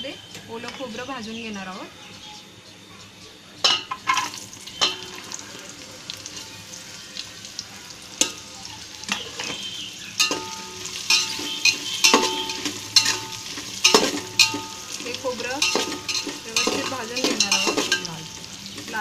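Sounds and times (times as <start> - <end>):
food sizzling in hot oil: 3.6 - 19.0
pot ringing: 3.7 - 5.6, 8.2 - 19.0
metal spatula scraping a pot: 9.1 - 19.0.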